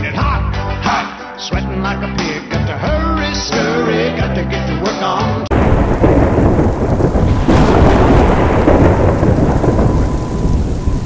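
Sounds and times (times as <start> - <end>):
music: 0.0 - 5.5
rain: 5.5 - 11.0
thunder: 5.5 - 11.0.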